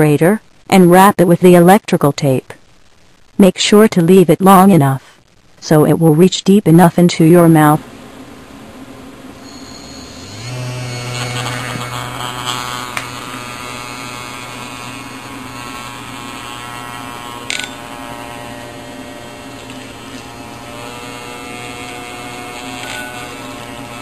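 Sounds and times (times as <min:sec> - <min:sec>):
vibrator buzzing: 0:07.9 - 0:24.0.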